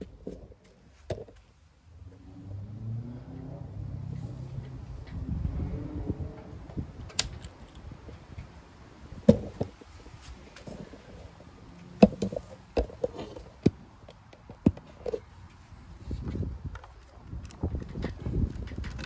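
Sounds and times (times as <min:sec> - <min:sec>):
handling knocks and clicks: 0:00.0 - 0:01.6, 0:07.0 - 0:08.5, 0:09.2 - 0:15.6, 0:16.2 - 0:19.0.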